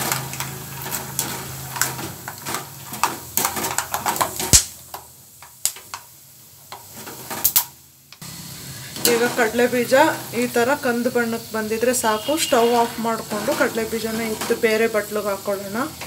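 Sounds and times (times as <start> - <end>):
strainer scraping a metal pan: 0.0 - 4.5, 6.8 - 7.6, 12.1 - 14.9
peanuts sizzling in hot oil: 0.0 - 16.0.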